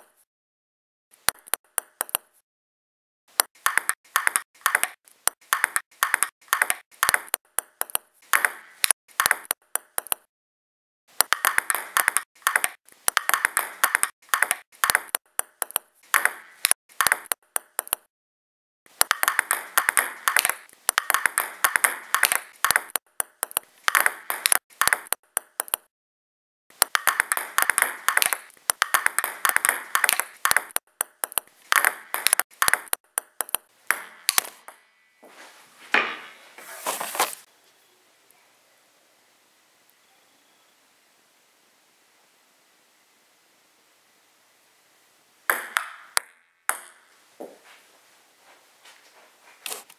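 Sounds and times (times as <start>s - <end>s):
ping pong balls clicking on table: 1.2s - 2.3s, 3.3s - 10.3s, 11.1s - 18.1s, 18.9s - 25.9s, 26.8s - 34.9s, 45.5s - 47.1s.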